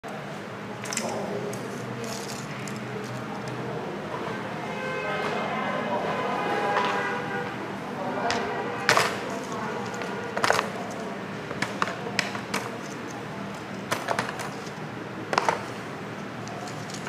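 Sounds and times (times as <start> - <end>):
wooden sticks clicking and clattering: 0.8 - 3.6, 8.3 - 17.0.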